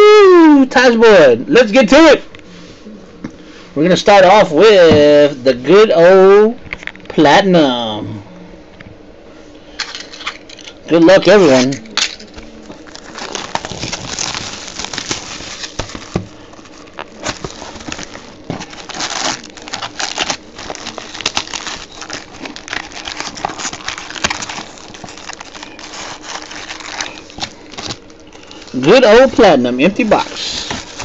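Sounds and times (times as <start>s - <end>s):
plastic wrap crinkling: 9.8s - 31.0s.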